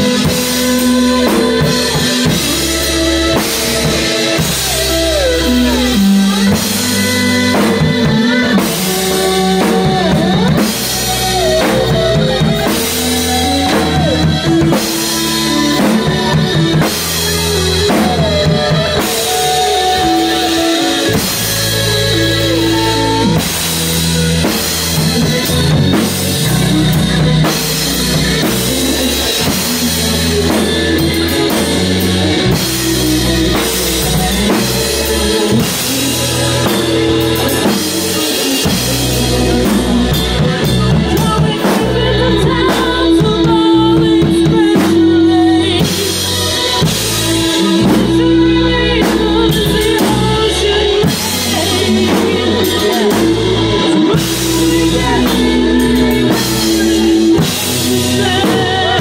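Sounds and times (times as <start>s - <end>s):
bass line: 0.0s - 59.0s
drum kit steady beat: 0.0s - 59.0s
electric guitar bending notes: 0.0s - 59.0s.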